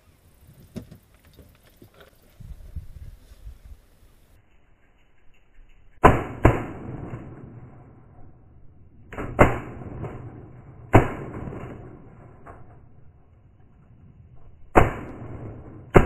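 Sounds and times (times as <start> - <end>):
shotgun shots: 6.0 - 7.8, 9.1 - 12.7, 14.7 - 16.0.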